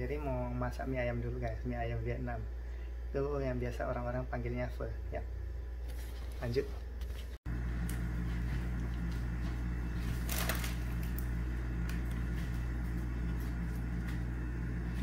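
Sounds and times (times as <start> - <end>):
low room tone hum: 0.0 - 15.0.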